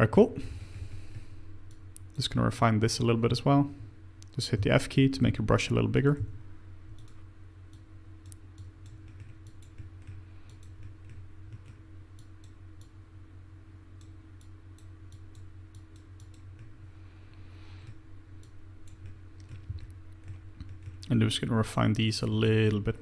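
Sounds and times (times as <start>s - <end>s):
low electrical hum: 0.0s - 23.0s
computer mouse clicks: 7.0s - 13.0s, 14.0s - 16.7s
keyboard clicks: 8.2s - 12.9s.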